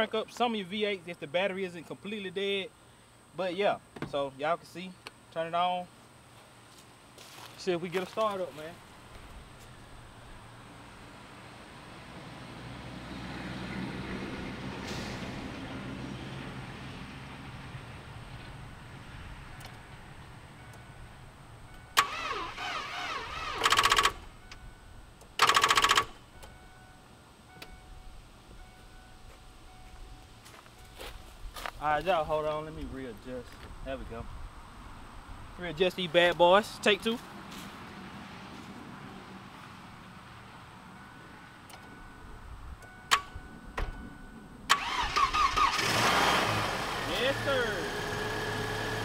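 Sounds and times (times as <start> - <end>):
car engine cranking and starting: 21.6 - 26.6, 43.0 - 49.0
sharp clicks: 23.6 - 24.6, 25.2 - 26.6.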